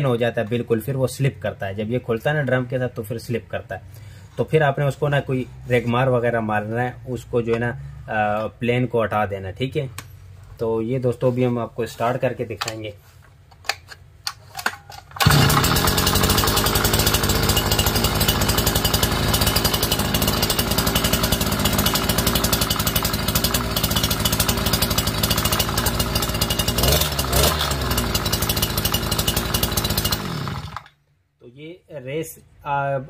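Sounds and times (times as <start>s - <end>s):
small petrol engine running: 15.2s - 30.9s.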